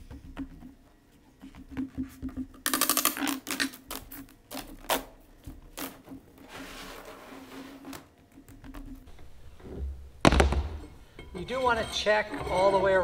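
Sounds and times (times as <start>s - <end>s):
hardboard sheet scraping: 5.9s - 8.1s
low thump: 10.2s - 10.9s.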